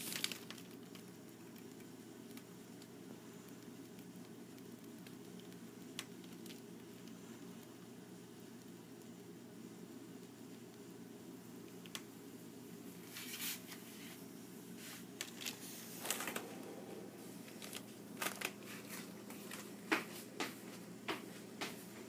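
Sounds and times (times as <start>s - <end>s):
hamster nibbling oatmeal: 0.0s - 14.1s.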